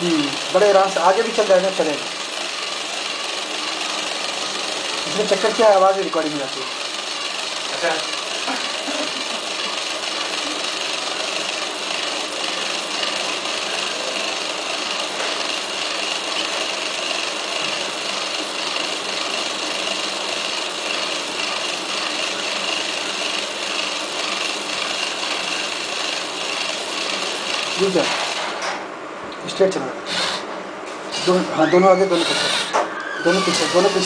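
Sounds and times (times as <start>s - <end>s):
small gear motors whirring: 0.0s - 28.5s, 30.1s - 30.5s, 31.1s - 34.0s.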